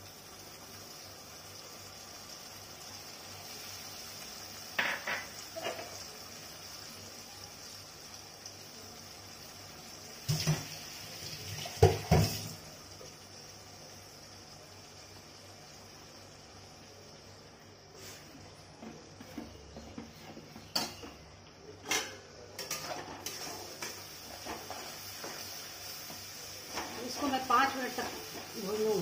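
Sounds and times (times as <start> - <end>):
onions sizzling in oil: 0.0 - 21.6, 22.2 - 29.0.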